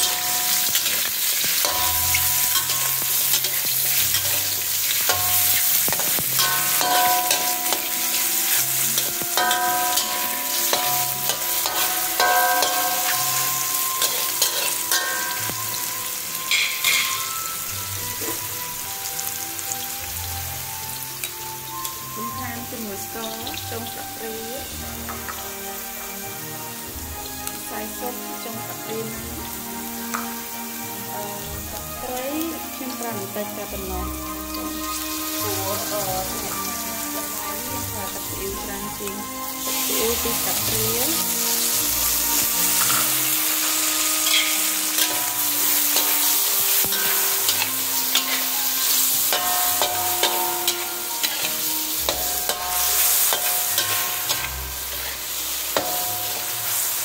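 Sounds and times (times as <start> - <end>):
metal spatula scraping a wok: 0.0 - 18.6, 39.4 - 57.0
food sizzling in hot oil: 0.0 - 57.0
soft background music: 0.0 - 57.0.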